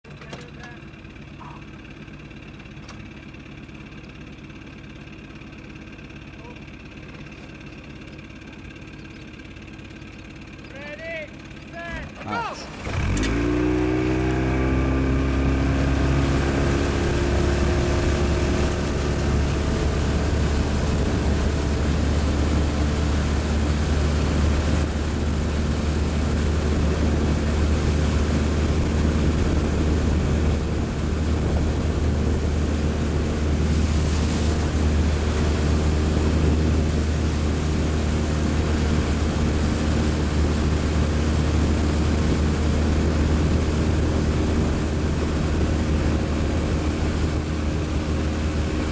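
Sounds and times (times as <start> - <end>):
motorboat engine running: 0.0 - 48.9.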